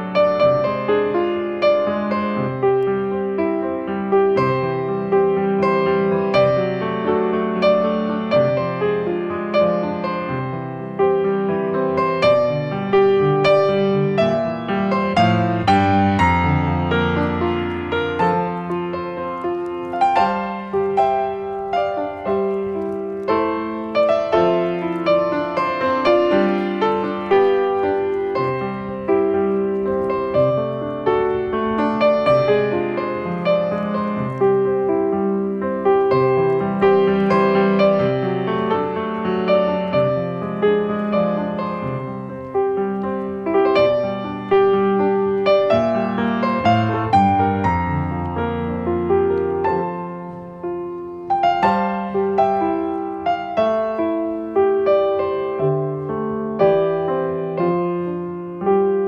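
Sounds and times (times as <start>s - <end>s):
slow piano melody: 0.0s - 59.0s.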